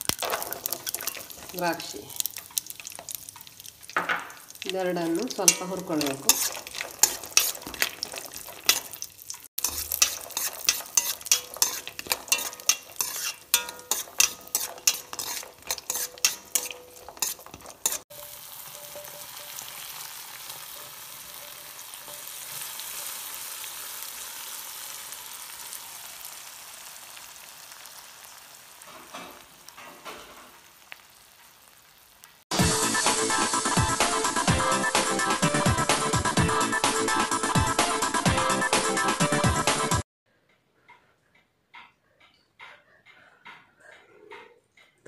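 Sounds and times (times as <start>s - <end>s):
nuts frying in hot oil: 0.0s - 34.5s
spoon scraping steel pan: 0.1s - 19.9s.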